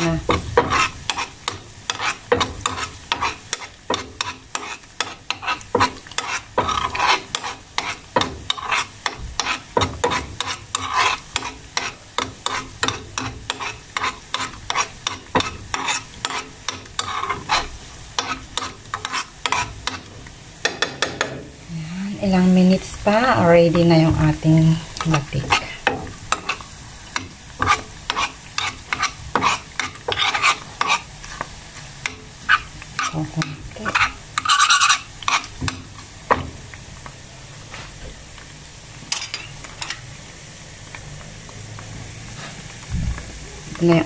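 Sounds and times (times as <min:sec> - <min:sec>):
spoon scraping a metal pan: 0:00.0 - 0:20.1, 0:25.0 - 0:31.4, 0:32.4 - 0:35.8
food sizzling in oil: 0:00.0 - 0:44.0.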